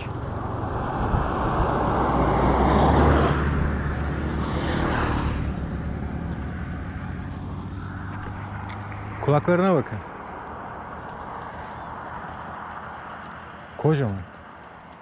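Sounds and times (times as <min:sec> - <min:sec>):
wind rumble on microphone: 0:00.0 - 0:09.3
car passing: 0:00.0 - 0:15.0.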